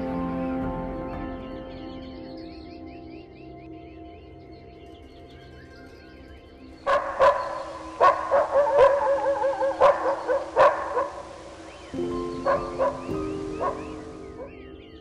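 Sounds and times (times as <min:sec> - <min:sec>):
soft background music: 0:00.0 - 0:15.0
dog barking: 0:06.9 - 0:11.6, 0:12.4 - 0:14.5.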